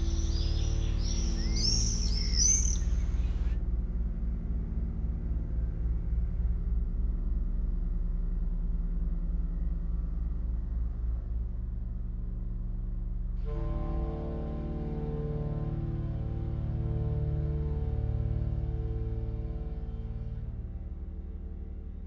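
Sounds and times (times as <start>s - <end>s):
low electronic drone with pulsing throb: 0.0s - 22.0s
high bird-like chirps: 0.2s - 3.2s.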